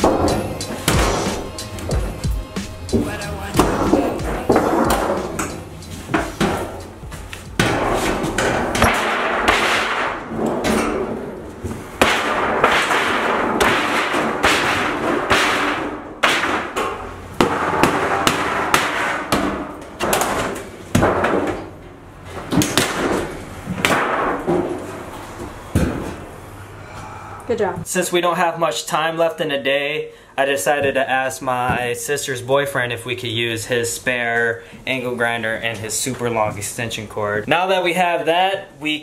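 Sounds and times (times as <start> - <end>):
sheet metal panel bending and clanking: 2.9 - 25.1.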